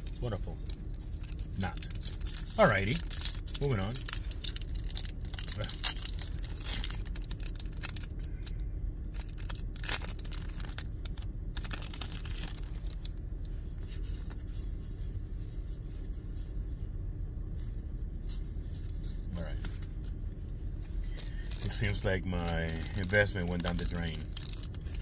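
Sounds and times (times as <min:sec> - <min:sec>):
foil crinkling: 0:00.0 - 0:08.3, 0:09.0 - 0:13.1, 0:21.0 - 0:25.0
steady low hum: 0:00.0 - 0:25.0
foil wrapper tearing: 0:00.8 - 0:08.3, 0:09.1 - 0:13.1, 0:21.1 - 0:25.0
cards being handled: 0:09.2 - 0:16.7, 0:17.6 - 0:25.0.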